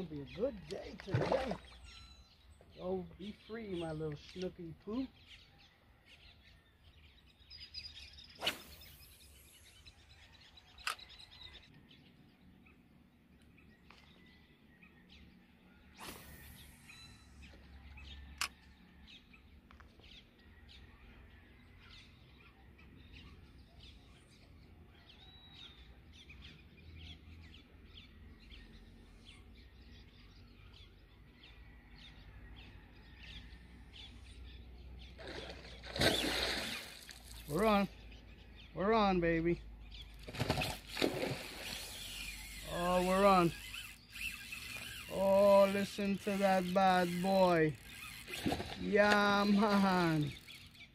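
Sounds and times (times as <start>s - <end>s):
birds chirping: 0.0s - 50.9s
swish: 8.4s - 8.9s
sharp clicks: 10.8s - 11.1s.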